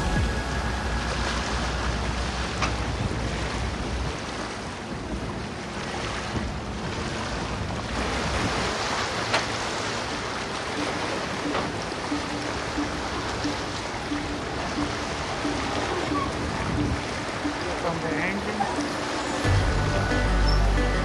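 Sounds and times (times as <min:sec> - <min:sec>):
rushing outdoor ambience: 0:00.0 - 0:21.0
wind buffeting microphone: 0:14.7 - 0:17.4.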